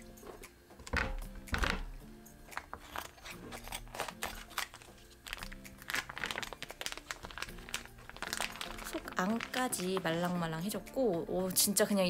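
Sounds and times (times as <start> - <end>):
background music with low notes: 0.0 - 12.0
scissors cutting plastic bag: 2.5 - 10.7
plastic bag crinkling: 2.8 - 10.8.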